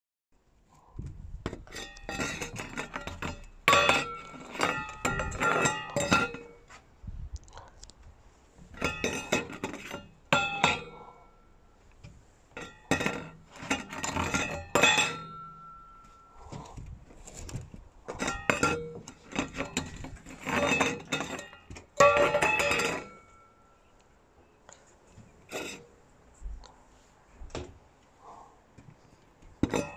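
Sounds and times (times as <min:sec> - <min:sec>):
metal bowl clattering and ringing: 0:01.8 - 0:06.6, 0:08.8 - 0:11.5, 0:12.6 - 0:16.4, 0:18.2 - 0:23.8, 0:29.7 - 0:29.9.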